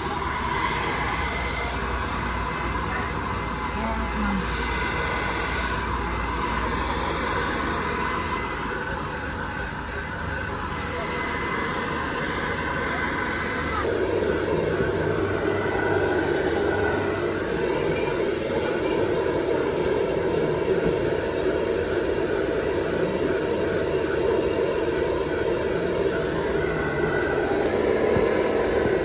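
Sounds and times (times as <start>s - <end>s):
hair dryer blowing air: 0.0s - 29.0s.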